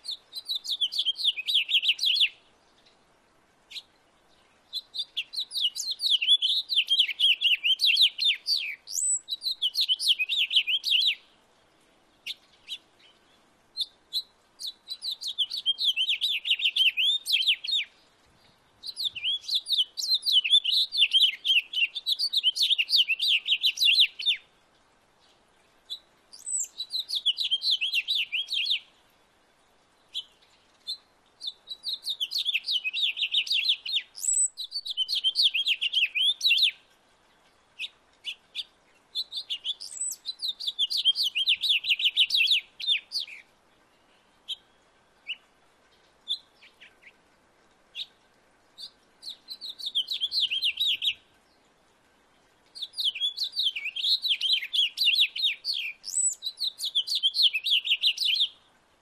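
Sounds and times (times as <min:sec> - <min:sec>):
house finch warbling song: 0:00.1 - 0:02.3, 0:04.7 - 0:11.2, 0:13.8 - 0:17.9, 0:18.8 - 0:24.4, 0:26.4 - 0:28.8, 0:30.1 - 0:36.8, 0:37.8 - 0:43.4, 0:48.8 - 0:51.2, 0:52.8 - 0:58.5.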